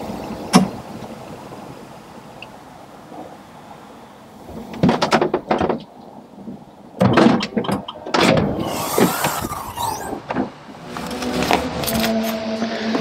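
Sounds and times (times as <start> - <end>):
car door clunks and rattles: 7.0 - 8.6.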